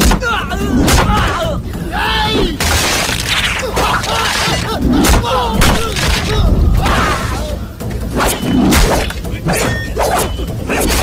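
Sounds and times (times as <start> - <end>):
men shouting and grunting: 0.0 - 2.7, 3.4 - 8.2.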